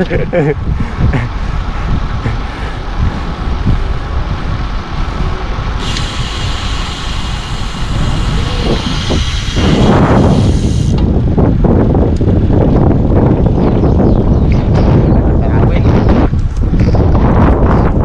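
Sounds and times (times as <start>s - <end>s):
wind buffeting microphone: 0.0s - 18.0s
steady high hiss: 5.8s - 11.0s.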